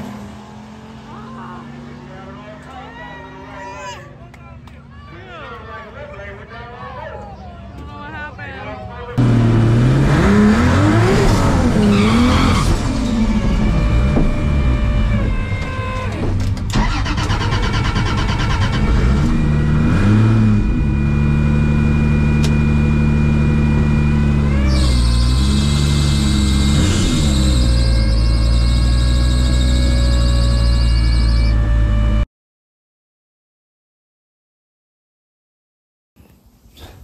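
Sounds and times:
turbocharged engine revving and sputtering: 9.2 - 16.1, 16.7 - 32.2.

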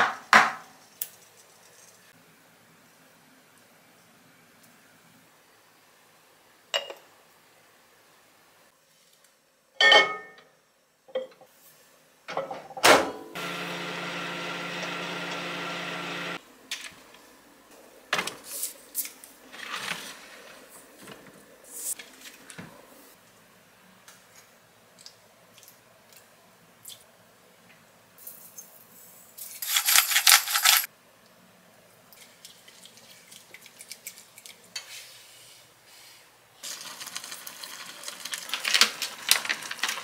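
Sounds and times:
bottles clinking: 9.8 - 10.4
microwave humming: 12.9 - 16.4.

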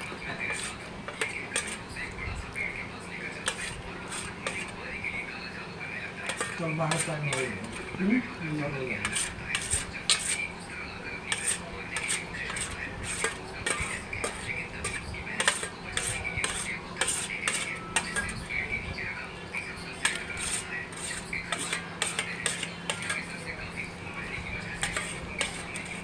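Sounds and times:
spoon scraping metal plate: 0.3 - 2.0, 3.4 - 4.8, 6.2 - 8.0, 8.6 - 10.6, 11.2 - 18.6, 19.6 - 26.0.

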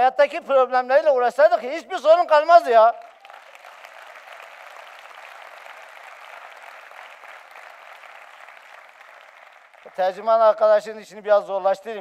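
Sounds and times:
audience applauding: 3.0 - 10.3.

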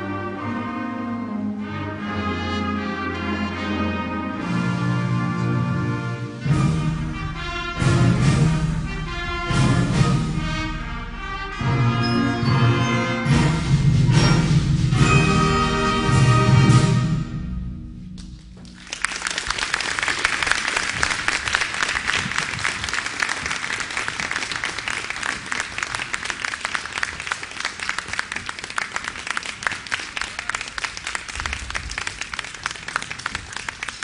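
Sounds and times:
audience applause: 18.6 - 34.0.

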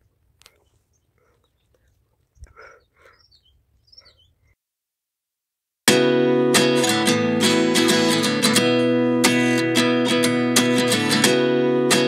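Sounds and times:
strummed acoustic guitar: 5.9 - 12.0.

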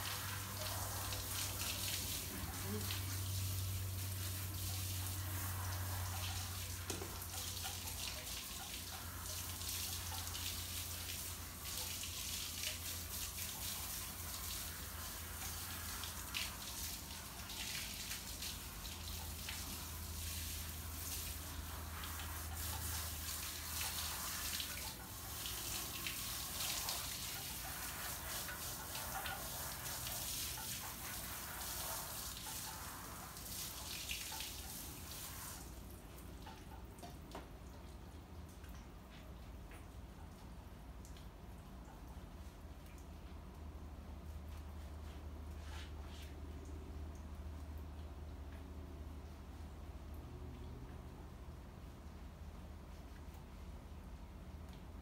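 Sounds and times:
hose water spraying and splashing: 0.0 - 36.8.

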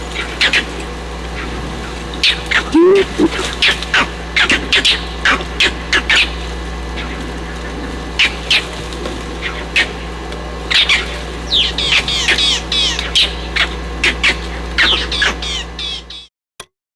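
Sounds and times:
steady low hum: 0.0 - 16.3
short high animal calls: 2.4 - 3.5.

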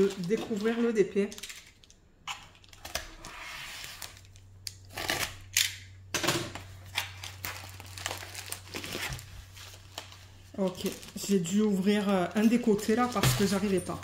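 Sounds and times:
plastic bag rustling: 0.0 - 1.4, 6.8 - 14.0.

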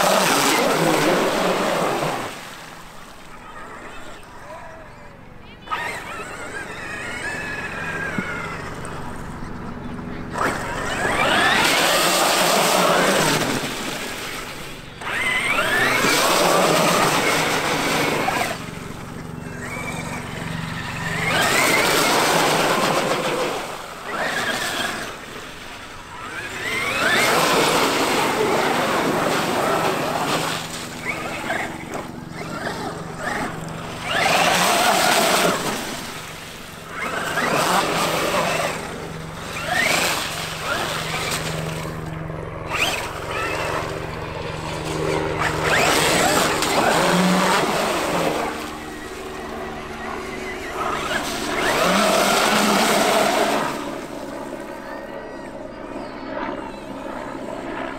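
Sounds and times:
rc truck electric motor whining: 5.5 - 53.8.

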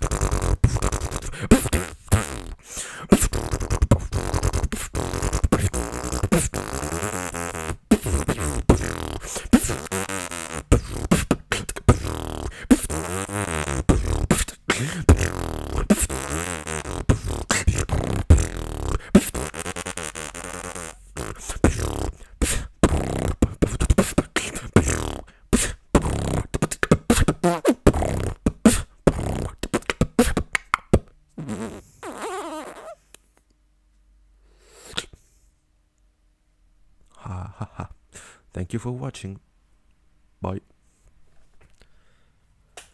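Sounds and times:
beatboxing: 0.0 - 33.0, 34.8 - 35.2.

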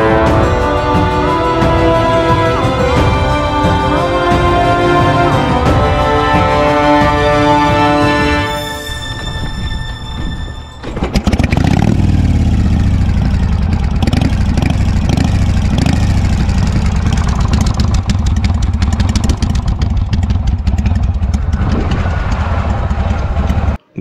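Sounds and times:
motorcycle engine revving: 10.8 - 23.8.

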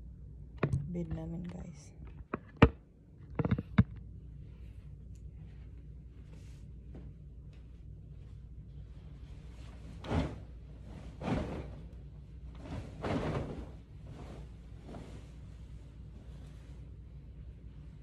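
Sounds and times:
steady low hum: 0.0 - 18.0
fabric swishing: 8.2 - 18.0.

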